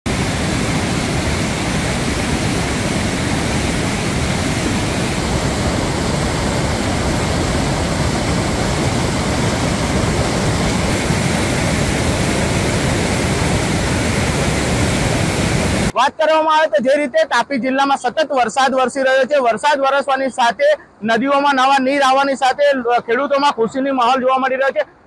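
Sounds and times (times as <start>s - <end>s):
flood water rushing over ledge: 0.1s - 16.0s.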